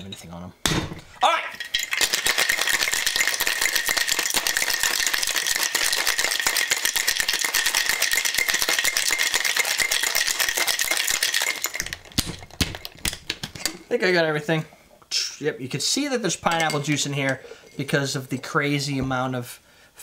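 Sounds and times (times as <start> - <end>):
ice rattling in a shaker: 1.2 - 13.2.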